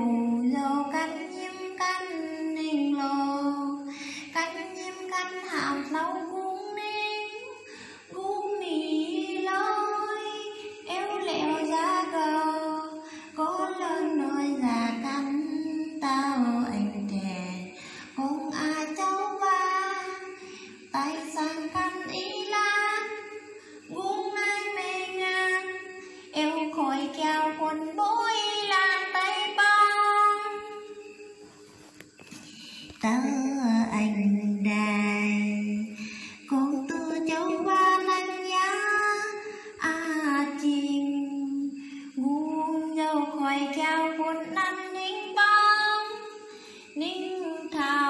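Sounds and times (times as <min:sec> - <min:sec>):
woman singing unaccompanied: 0:00.0 - 0:31.4, 0:32.1 - 0:48.0.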